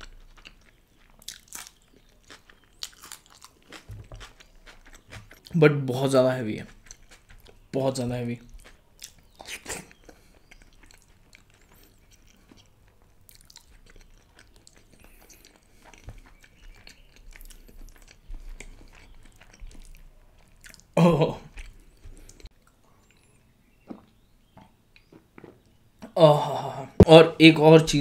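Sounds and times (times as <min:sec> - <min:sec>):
man chewing food: 0:00.0 - 0:26.2
mouth smacks and clicks: 0:08.4 - 0:12.7.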